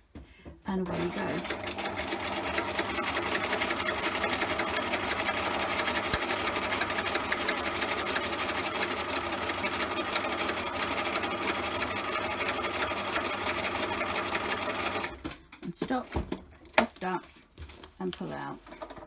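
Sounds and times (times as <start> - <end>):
sewing machine stitching: 0.9 - 15.2.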